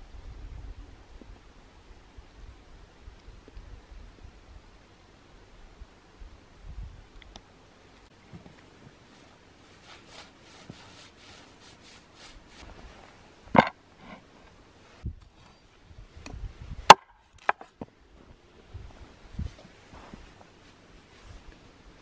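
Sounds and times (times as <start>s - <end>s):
brushing snow off stump: 9.0s - 13.2s.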